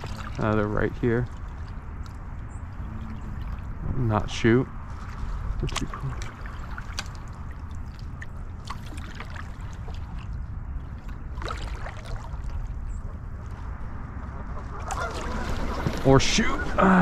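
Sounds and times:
creek water lapping and trickling: 0.0s - 17.0s.

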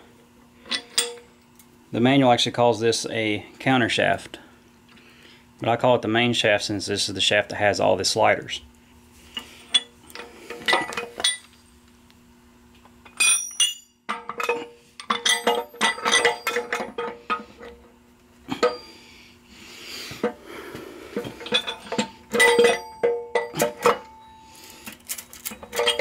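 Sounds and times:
metal gears clinking and knocking: 13.1s - 17.1s, 21.4s - 24.1s, 25.1s - 26.0s.

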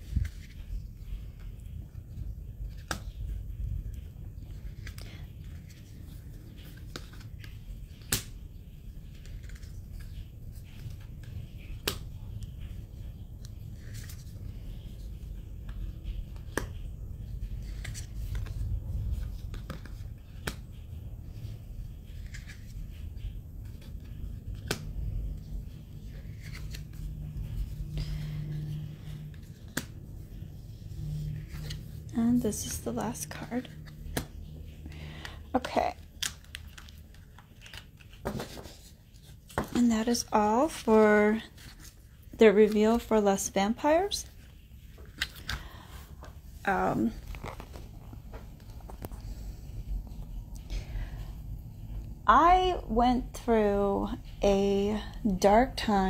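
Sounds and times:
cards sliding and set down: 36.2s - 39.0s.

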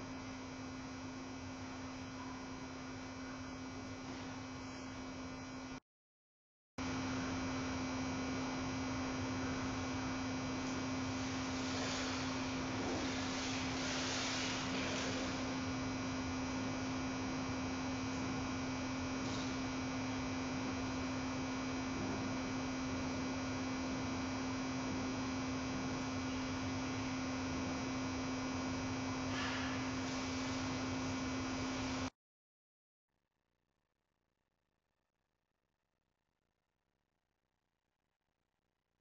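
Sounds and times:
low-pitched electrical hum: 0.0s - 5.8s, 6.8s - 32.1s.

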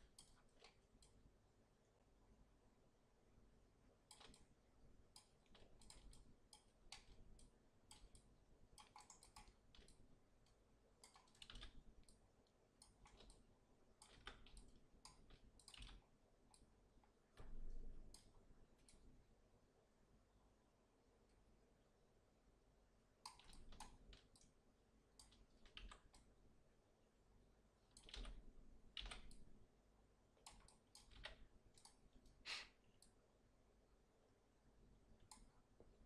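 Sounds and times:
mouse and keyboard clicking: 0.0s - 1.2s, 4.1s - 4.5s, 5.1s - 12.2s, 12.8s - 16.7s, 23.2s - 24.5s, 25.2s - 26.3s, 27.9s - 29.5s, 30.4s - 32.1s, 35.2s - 35.5s.

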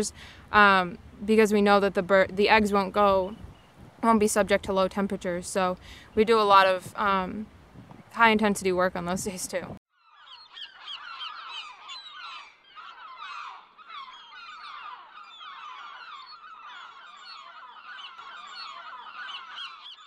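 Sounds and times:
flock of birds calling: 10.0s - 20.0s.

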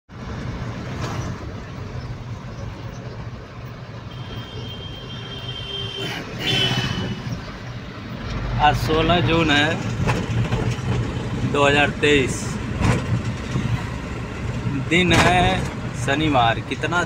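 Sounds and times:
road noise: 0.1s - 17.0s.

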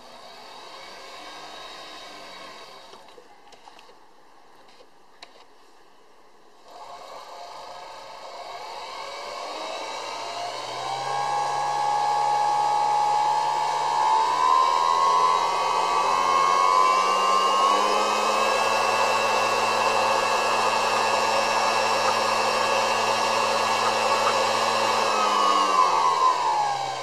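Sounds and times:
homogenizer motor whine: 6.7s - 27.0s.

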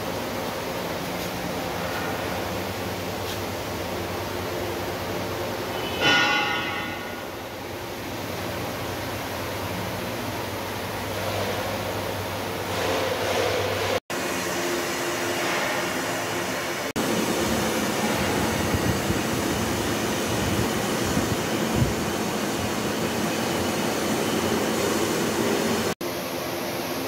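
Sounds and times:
workshop noise: 0.0s - 26.0s.

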